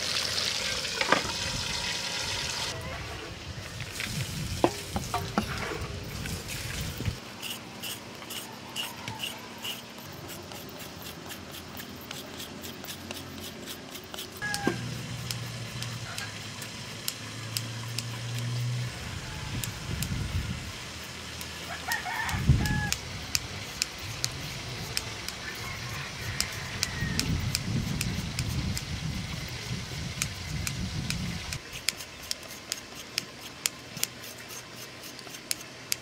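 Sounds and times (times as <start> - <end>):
carrot grating scrapes: 5.2 - 16.3.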